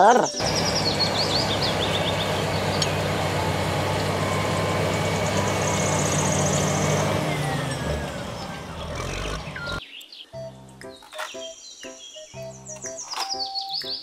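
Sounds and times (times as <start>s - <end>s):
bulldozer diesel engine under load: 0.4s - 9.8s
bulldozer running gear: 0.4s - 9.8s.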